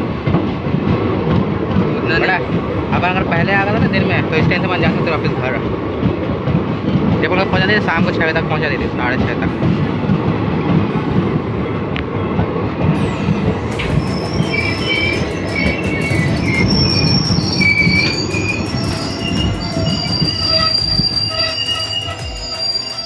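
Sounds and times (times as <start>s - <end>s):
train rumbling on rails: 0.0s - 23.0s
wheels squealing on rails: 12.8s - 23.0s.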